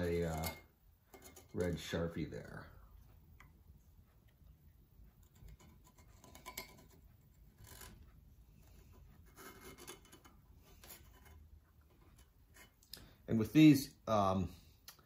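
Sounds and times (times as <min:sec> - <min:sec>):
steel scribe scratching metal: 0:05.6 - 0:08.1, 0:09.2 - 0:12.8.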